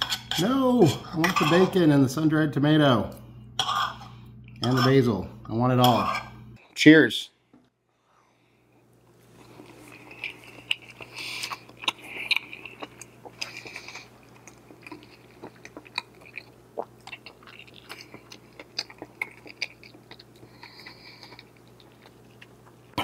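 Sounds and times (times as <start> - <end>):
faint low hum: 0.0 - 23.0
person chewing food: 9.1 - 23.0.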